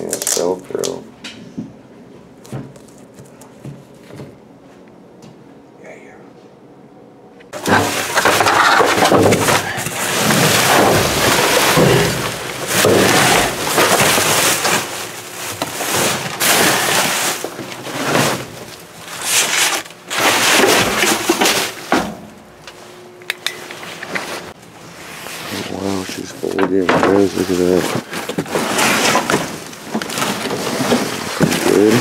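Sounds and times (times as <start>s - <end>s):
plastic bags rustling and crinkling: 7.6s - 21.9s, 23.8s - 32.0s.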